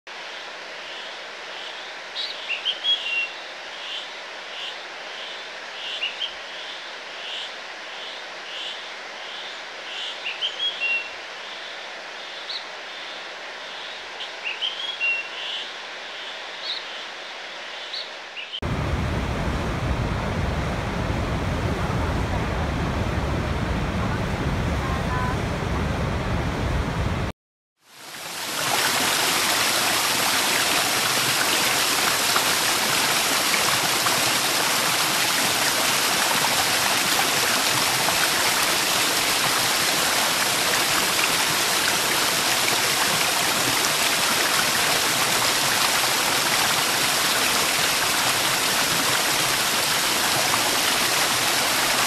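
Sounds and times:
stream rushing over boulders: 0:18.6 - 0:52.0
large waterfall rushing: 0:27.9 - 0:52.0.

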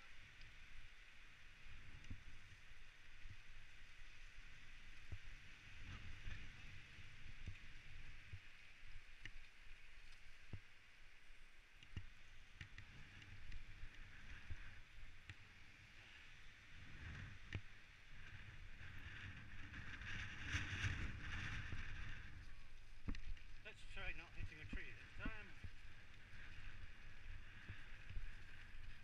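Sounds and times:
mountain bike rumbling on dirt trail: 0:18.1 - 0:24.0.

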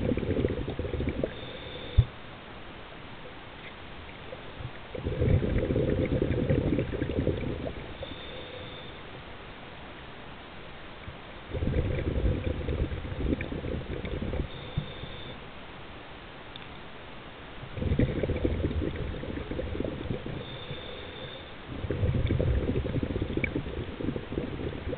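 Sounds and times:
underwater breath bubbles gurgling: 0:00.0 - 0:02.1, 0:04.3 - 0:09.0, 0:11.5 - 0:15.4, 0:17.7 - 0:24.9.

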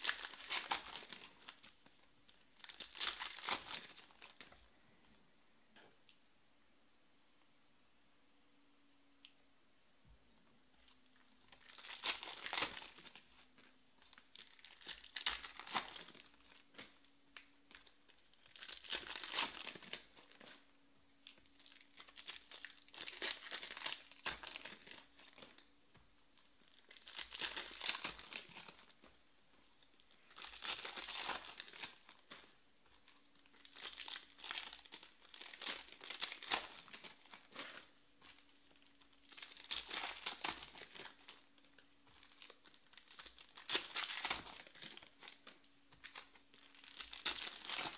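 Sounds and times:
foil wrappers crinkling and tearing: 0:00.0 - 0:04.5, 0:11.4 - 0:17.0, 0:17.7 - 0:20.6, 0:21.2 - 0:25.7, 0:26.6 - 0:29.1, 0:29.8 - 0:47.9.

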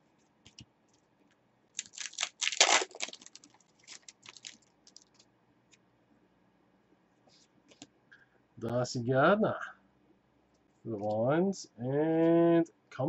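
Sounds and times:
cards clicking while shuffled: 0:01.8 - 0:05.2
wrappers crinkling and rustling: 0:01.8 - 0:05.3.

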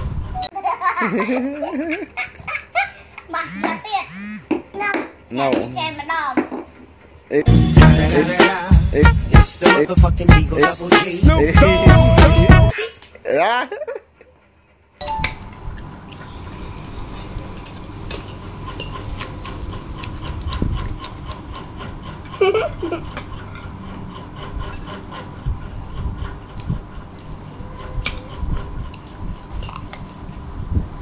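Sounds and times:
chewing with clicks: 0:15.5 - 0:21.7, 0:28.0 - 0:30.4.

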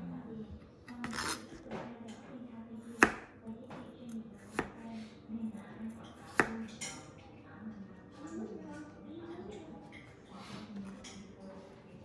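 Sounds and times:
knife chopping on cutting board: 0:01.0 - 0:01.8, 0:02.8 - 0:03.8, 0:04.4 - 0:04.8, 0:06.2 - 0:06.7.

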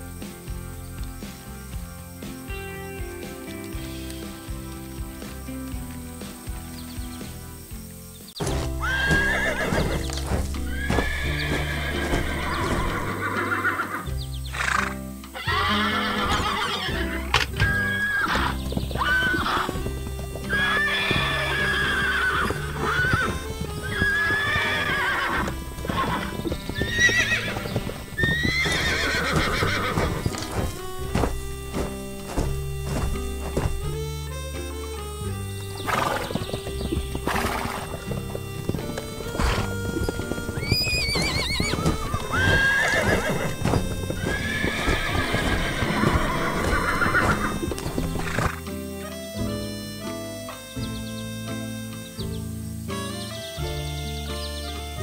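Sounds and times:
background music: 0:00.0 - 0:55.0
hooves clip-clopping: 0:00.0 - 0:55.0
horses whinnying: 0:08.4 - 0:49.3.

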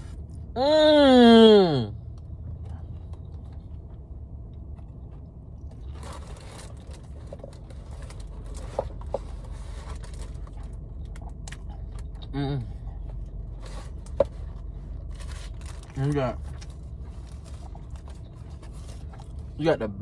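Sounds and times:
low hum: 0:00.0 - 0:20.0
paper wrapper crinkling: 0:05.7 - 0:11.5, 0:15.0 - 0:19.4.

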